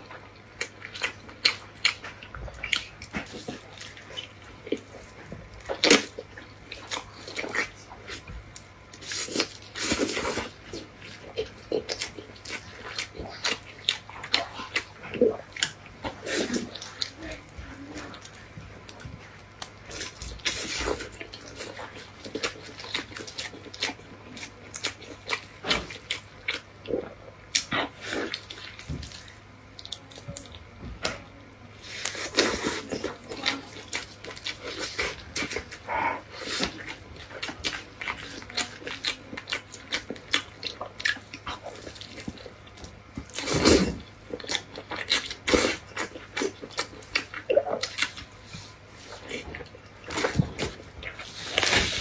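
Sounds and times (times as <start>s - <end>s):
wet chewing and lip smacking: 0.0s - 31.2s, 31.8s - 52.0s.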